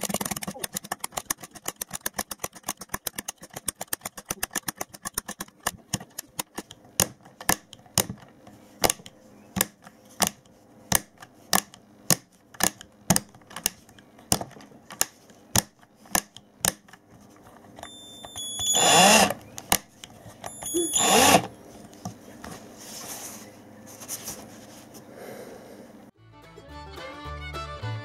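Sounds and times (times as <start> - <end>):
drill switch plastic clicks: 0.0 - 17.0, 17.8 - 21.5.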